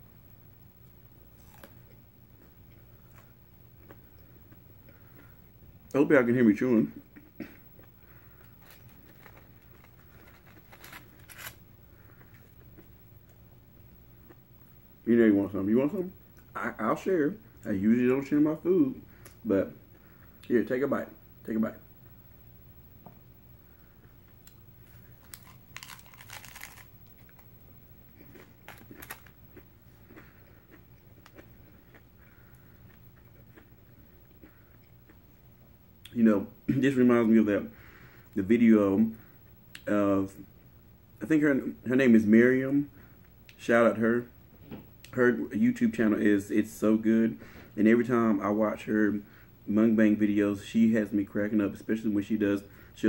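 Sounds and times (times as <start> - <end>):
soft crackles of eating taco: 0.5 - 53.0
crunching taco shell: 1.3 - 2.0, 7.8 - 12.5, 24.5 - 27.5, 28.2 - 33.7
chewing: 1.4 - 2.5.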